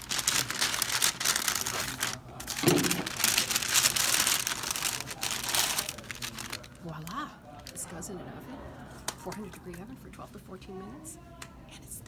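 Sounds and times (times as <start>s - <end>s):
paper bag crinkling: 0.0s - 7.9s.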